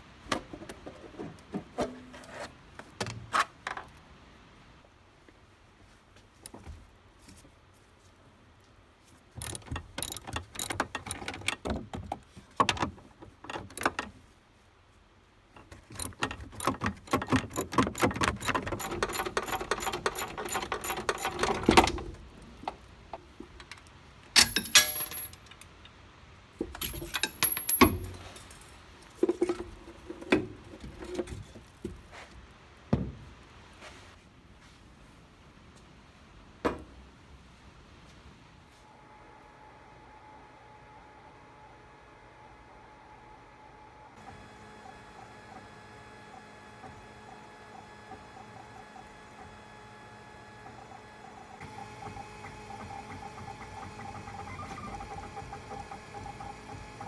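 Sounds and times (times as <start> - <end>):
metallic clanks of tools: 24.4 - 25.6, 26.6 - 29.6.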